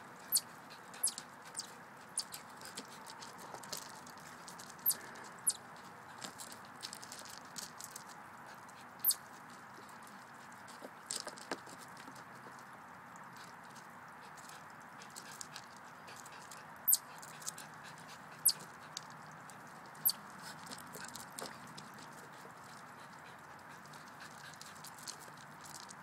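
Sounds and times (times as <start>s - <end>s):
chipmunk alarm chirps: 0.3s - 1.2s, 4.8s - 5.6s.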